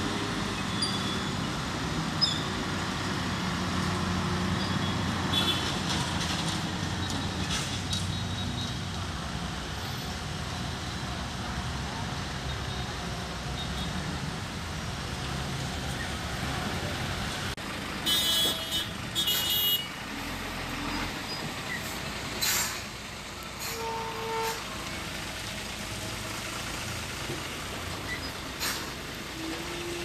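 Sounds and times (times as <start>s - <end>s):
vehicle engines idling: 0.0s - 30.0s
high-pitched car horn blasts: 18.1s - 19.9s, 23.7s - 24.6s
lower horn: 23.6s - 24.8s, 29.4s - 30.0s.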